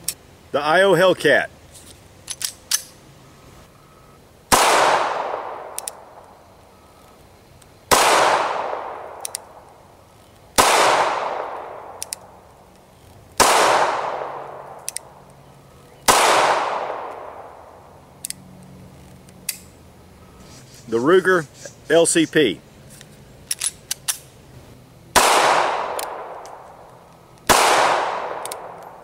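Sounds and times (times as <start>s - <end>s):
pistol gunshots: 4.5s - 6.0s, 7.9s - 9.2s, 10.6s - 12.0s, 13.4s - 14.7s, 16.1s - 17.5s, 25.1s - 26.6s, 27.5s - 28.8s.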